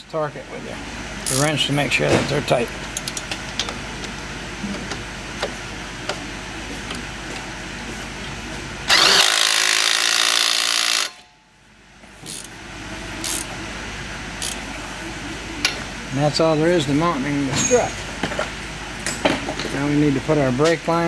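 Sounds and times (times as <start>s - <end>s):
metal wrench clicks: 12.3s - 12.5s, 13.2s - 13.5s, 14.4s - 14.6s.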